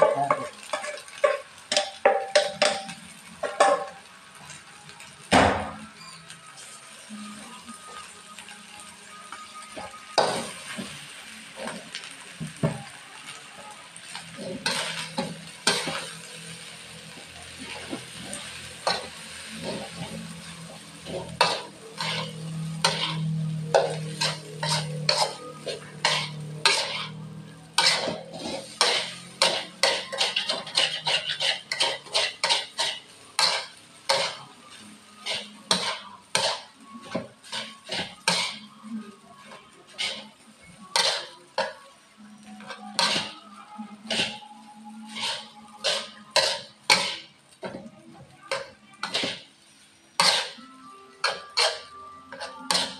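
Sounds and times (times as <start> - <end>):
faint sizzle: 0.0 - 52.9
metal spatula scraping a wok: 14.0 - 41.8, 42.4 - 47.4, 48.6 - 49.5, 50.2 - 52.9.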